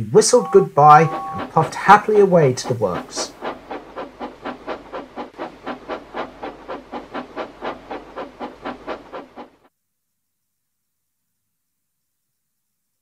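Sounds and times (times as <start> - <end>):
steam locomotive chuffing: 0.0 - 9.7.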